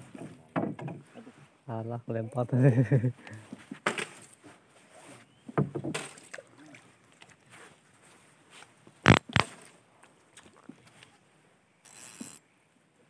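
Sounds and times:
sharp thumps: 9.1s - 9.4s.

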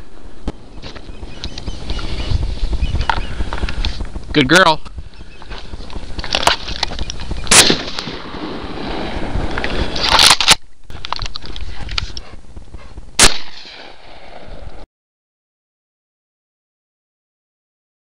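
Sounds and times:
shotgun shots: 7.5s - 9.3s, 13.2s - 14.5s.

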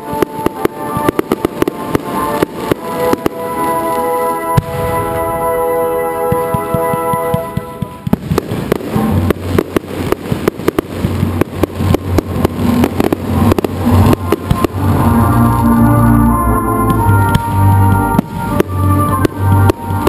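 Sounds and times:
fireworks bangs and crackles: 0.0s - 20.0s
music with held tones: 0.0s - 20.0s.

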